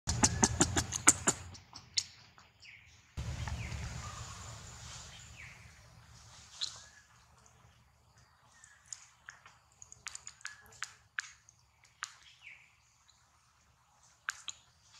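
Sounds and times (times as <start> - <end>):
sharp clicks: 0.1 - 1.6
faint bird chirps: 1.4 - 9.5, 10.1 - 11.0
low rumble: 3.2 - 6.3.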